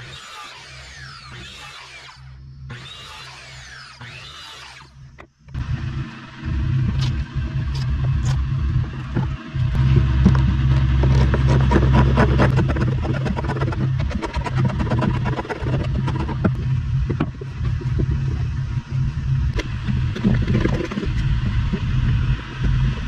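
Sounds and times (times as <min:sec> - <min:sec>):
steady low hum: 0:02.1 - 0:03.1, 0:04.8 - 0:23.0
vehicle engine rumbling: 0:05.0 - 0:23.0.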